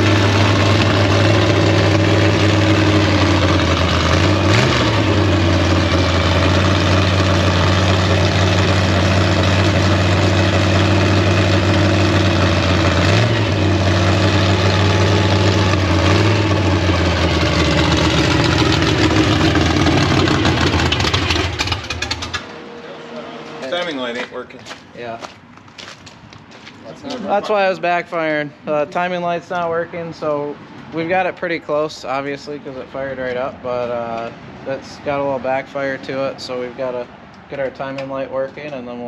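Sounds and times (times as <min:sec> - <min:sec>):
engine backfire: 0:00.0 - 0:22.7
car engine idling and revving: 0:00.0 - 0:26.8.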